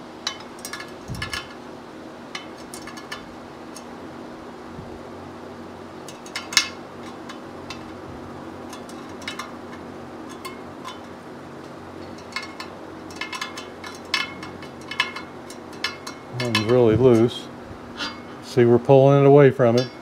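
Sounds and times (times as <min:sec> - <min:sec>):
steady low hum: 0:00.0 - 0:20.0
spoke wrench clinking on spokes: 0:06.0 - 0:08.0, 0:08.6 - 0:17.4, 0:19.7 - 0:20.0.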